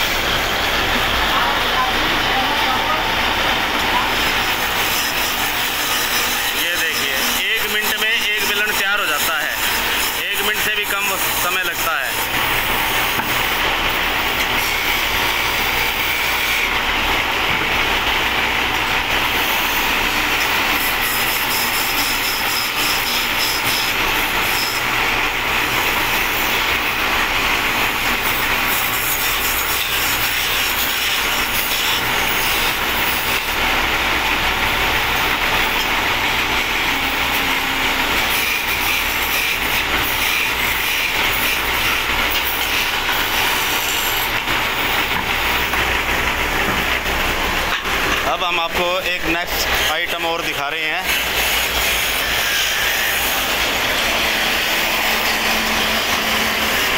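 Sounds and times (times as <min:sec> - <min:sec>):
lathe humming: 0:00.0 - 0:56.9
chisel scraping spinning wood: 0:03.6 - 0:16.8, 0:19.2 - 0:47.1.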